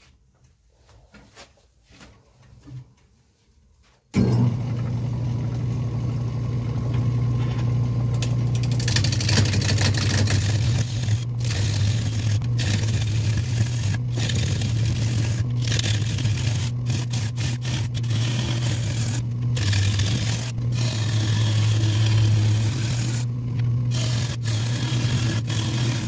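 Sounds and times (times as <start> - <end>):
wood lathe motor hum: 4.2 - 26.0
gouge cutting wood shavings hiss: 8.7 - 26.0.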